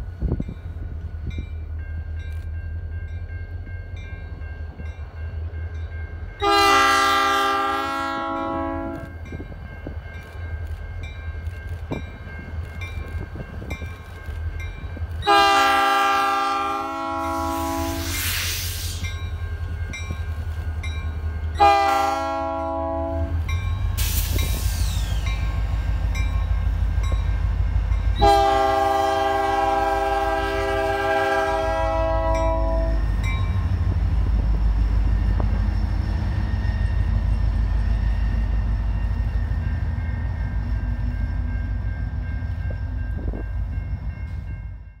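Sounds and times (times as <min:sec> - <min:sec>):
locomotive engines rumbling: 0:00.0 - 0:45.0
train air horn: 0:06.4 - 0:09.2, 0:15.2 - 0:19.0, 0:21.6 - 0:23.4, 0:28.2 - 0:33.1.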